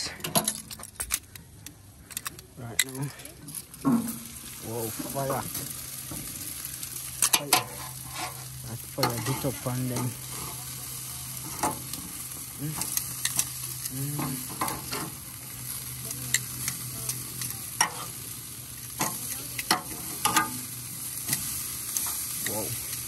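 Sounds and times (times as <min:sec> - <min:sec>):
chicken sizzling on grate: 0:01.8 - 0:23.0
metal tongs clicking and scraping: 0:12.8 - 0:15.2, 0:19.0 - 0:20.6.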